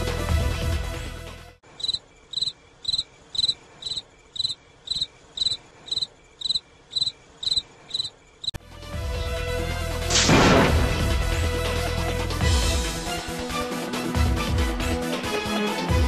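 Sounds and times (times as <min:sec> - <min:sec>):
background music: 0:00.0 - 0:01.6, 0:08.6 - 0:16.0
cricket chirping: 0:01.7 - 0:08.6.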